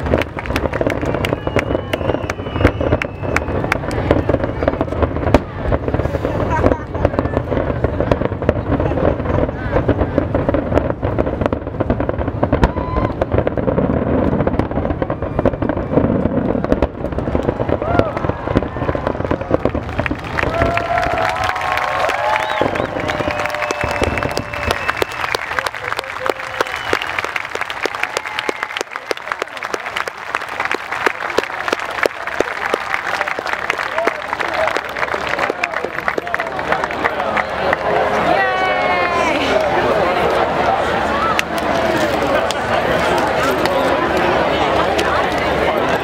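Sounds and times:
crowd applauding: 0.0 - 4.8, 16.4 - 46.0.

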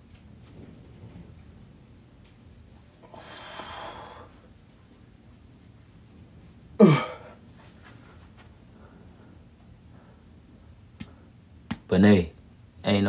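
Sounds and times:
man exhaling hard: 3.0 - 4.4
man grunting: 6.8 - 7.3.

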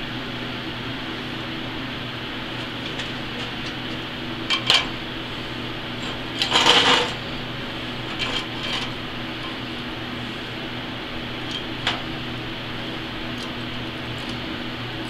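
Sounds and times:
steady hum: 0.0 - 15.0
metal square clattering on steel plate: 2.6 - 5.0, 6.0 - 7.3, 8.0 - 9.6.

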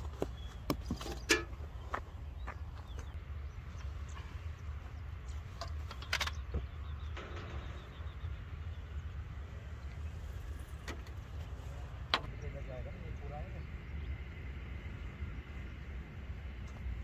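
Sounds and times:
steady low rumble: 6.6 - 17.0.

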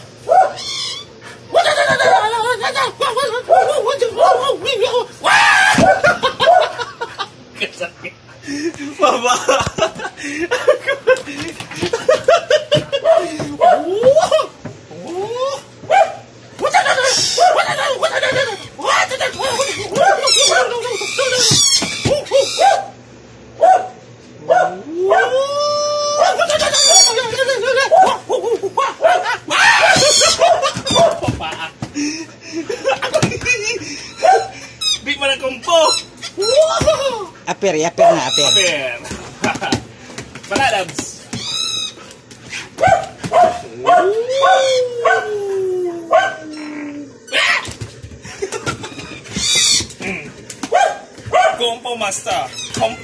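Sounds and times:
dog barking: 0.2 - 0.6, 3.5 - 4.6, 5.8 - 6.8, 13.0 - 13.9, 15.9 - 16.3, 17.2 - 17.8, 19.8 - 20.8, 22.2 - 23.0, 23.6 - 25.3, 27.8 - 31.2, 34.2 - 34.6, 38.0 - 38.4, 42.8 - 45.3, 46.1 - 46.4, 50.6 - 51.7
dog yipping and whining: 0.3 - 1.1, 1.8 - 2.3, 5.6 - 6.8, 16.8 - 23.0, 26.2 - 28.2, 28.8 - 31.2, 34.2 - 35.0, 42.8 - 45.5, 48.8 - 50.0
dog howling: 0.3 - 2.6, 3.2 - 6.8, 13.0 - 23.0, 23.6 - 31.2, 34.1 - 34.6, 42.8 - 47.7.

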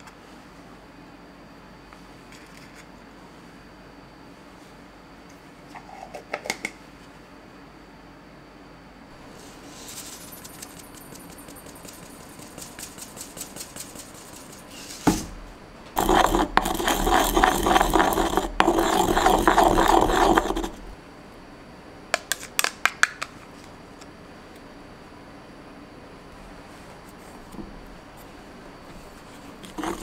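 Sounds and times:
pestle grinding seeds in mortar: 9.8 - 15.1, 16.0 - 21.0, 29.6 - 30.0.

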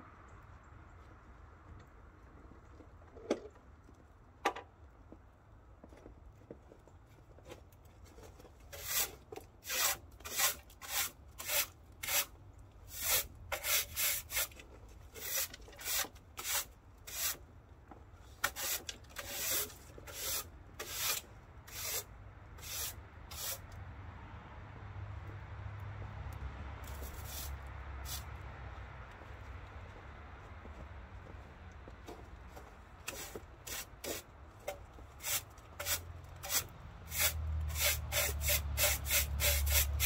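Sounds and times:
broom sweeping snow off wood: 8.7 - 12.3, 12.9 - 14.6, 15.2 - 17.4, 18.3 - 23.6, 26.9 - 28.3, 33.0 - 34.3, 35.2 - 40.0.

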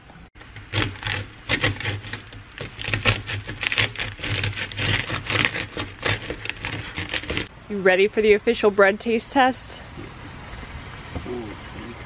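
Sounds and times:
bread knife sawing through crust: 0.6 - 7.5.

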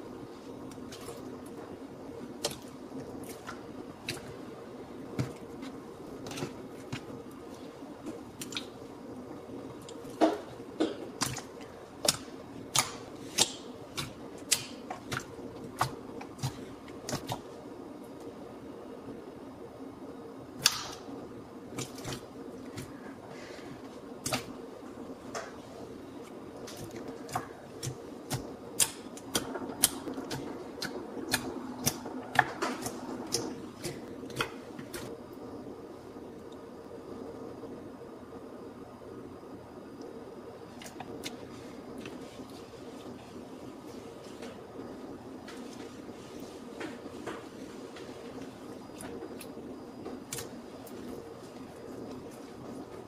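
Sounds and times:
slime clicking and popping: 11.2 - 17.4, 20.6 - 21.0, 27.8 - 34.5.

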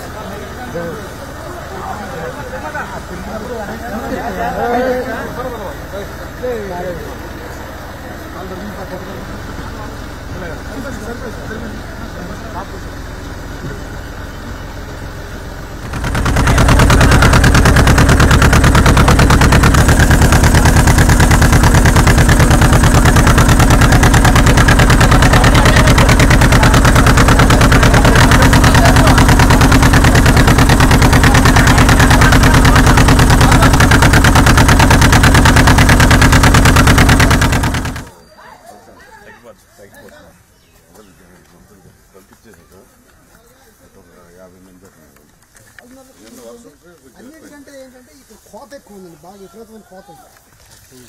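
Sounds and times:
engine running: 0.0 - 38.2.

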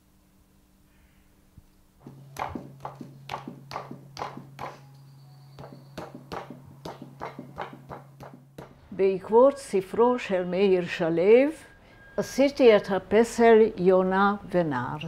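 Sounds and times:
low steady hum: 0.0 - 15.0
hands patting wet clay: 2.0 - 4.8.

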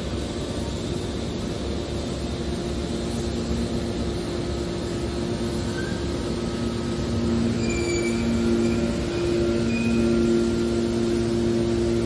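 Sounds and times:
hydraulic baler humming: 2.2 - 12.0
short high-pitched squeals: 5.6 - 6.1, 7.4 - 10.7.

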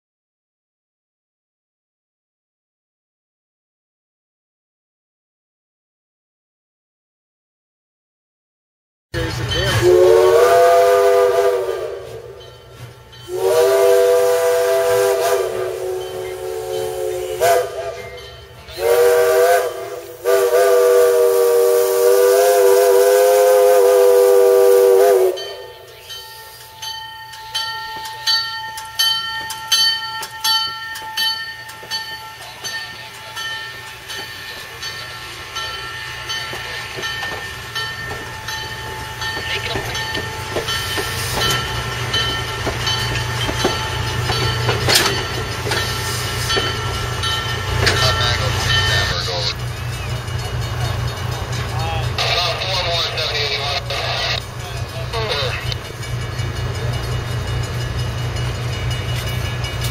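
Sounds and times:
locomotive bell ringing: 9.2 - 21.2, 23.9 - 59.9
steam locomotive chime whistle: 9.2 - 59.9.

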